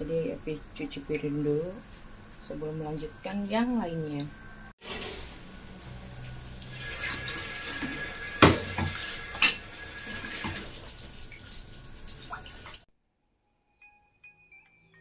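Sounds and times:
tap water running: 2.8 - 12.9.

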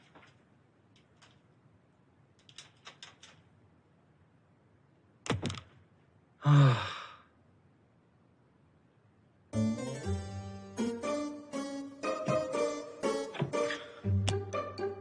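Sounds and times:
man sighing: 6.4 - 7.3.

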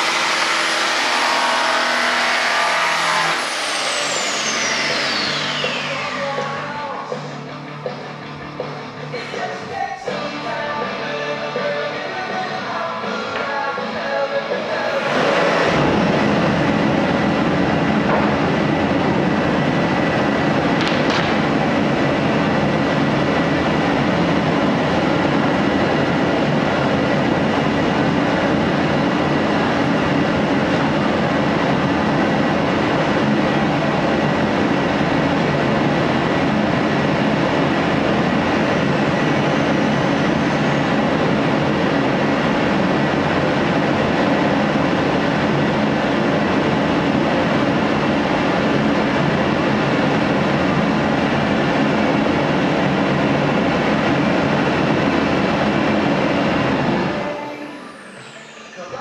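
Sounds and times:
power tool cutting wood: 0.0 - 6.7, 14.8 - 16.4.

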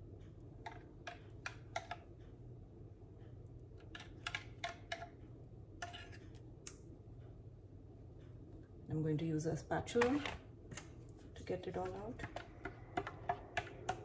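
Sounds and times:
low steady hum: 0.0 - 14.0
utensil tapping plastic cup: 11.9 - 14.0.

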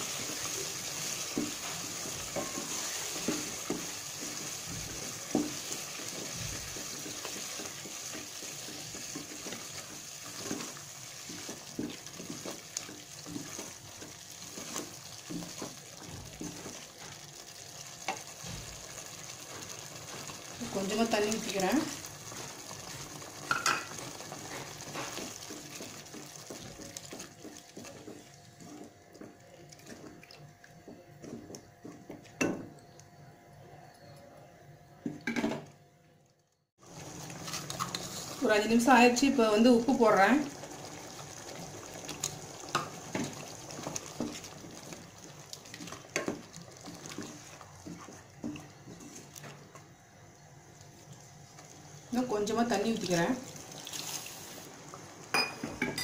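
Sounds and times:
wooden spatula scraping a pot: 0.0 - 17.2, 23.9 - 30.1, 37.3 - 39.2, 45.7 - 49.5
light sizzle: 0.0 - 34.2, 36.5 - 56.0.

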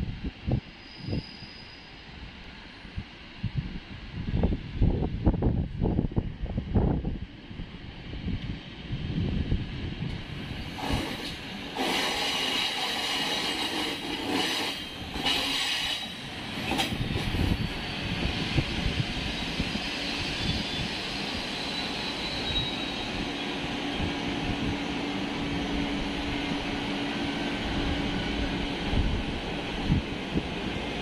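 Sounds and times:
train wheels rumbling: 6.8 - 31.0
high-pitched squeals: 19.2 - 23.6.

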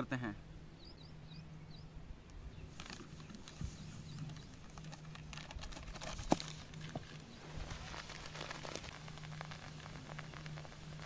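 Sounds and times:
paper sachets rustling: 2.8 - 11.0.

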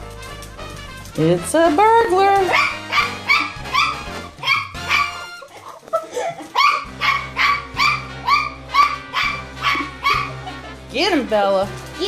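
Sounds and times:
dogs barking in yaps: 2.4 - 5.5, 6.4 - 10.6.

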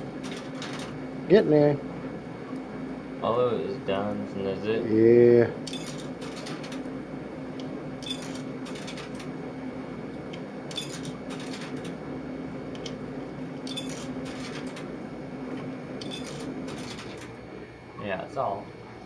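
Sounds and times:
vending machine hum: 0.0 - 19.0
coins clinking into machine: 5.7 - 6.8, 8.0 - 9.2, 10.7 - 11.9, 13.6 - 14.8, 16.0 - 17.2.

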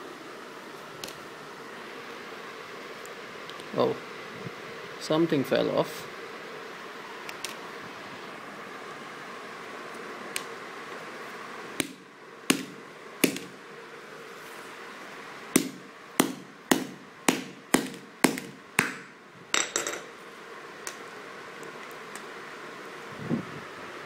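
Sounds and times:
hammer striking plastic phone: 11.8 - 13.5, 15.6 - 19.0.

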